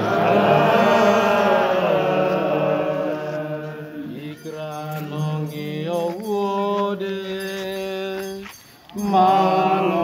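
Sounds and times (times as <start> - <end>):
slow religious chanting: 0.0 - 10.0.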